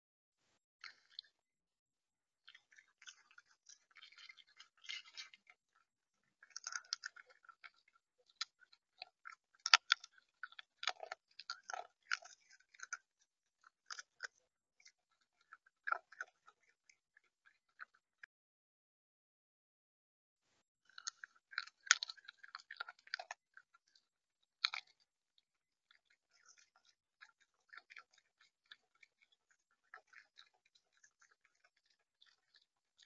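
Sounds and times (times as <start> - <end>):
bird pecking and cracking seeds: 2.4 - 18.2, 20.9 - 25.1.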